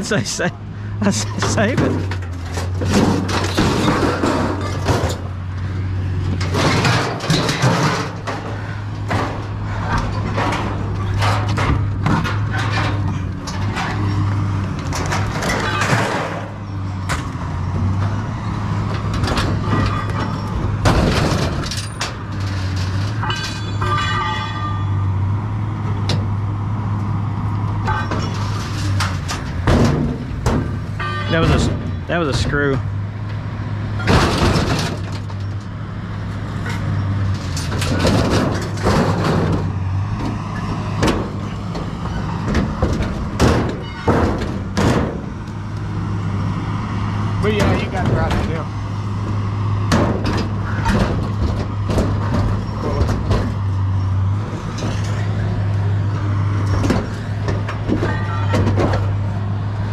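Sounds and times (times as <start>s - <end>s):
metal appliances clanging and scraping: 0.0s - 25.2s, 27.8s - 33.0s, 36.5s - 45.4s, 49.9s - 59.3s
metal-on-metal squeal: 15.4s - 18.0s, 19.4s - 20.7s, 21.7s - 25.2s, 31.0s - 31.7s, 43.6s - 44.4s, 52.5s - 53.2s.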